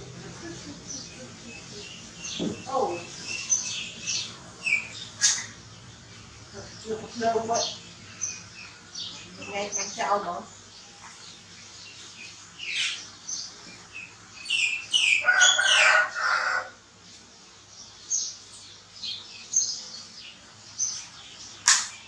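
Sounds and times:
high-pitched chirping calls: 0.3 - 16.6.

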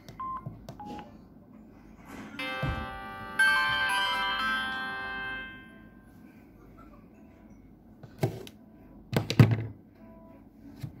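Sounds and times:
phone shutdown melody: 2.4 - 6.1.

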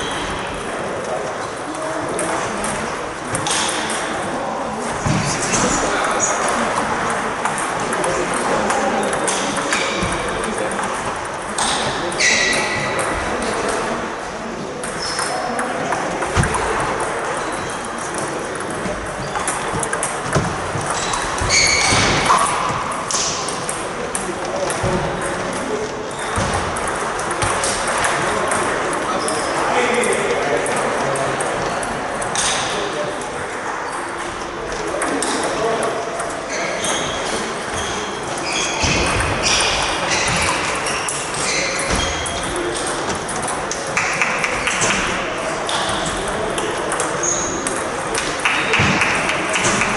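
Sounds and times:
hum of voices: 0.0 - 49.9
ping-pong balls clicking: 5.8 - 14.0, 14.7 - 37.9, 38.8 - 49.9
short high squeak: 21.5 - 22.0.

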